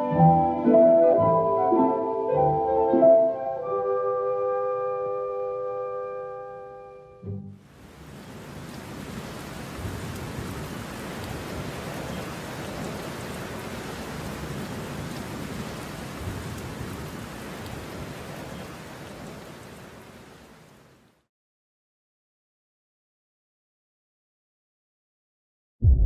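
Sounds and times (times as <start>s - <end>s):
steady rain: 7.6s - 21.3s.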